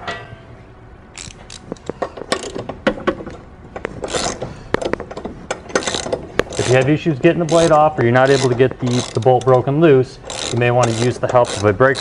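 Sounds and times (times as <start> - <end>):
rasping scrape: 5.7 - 9.4.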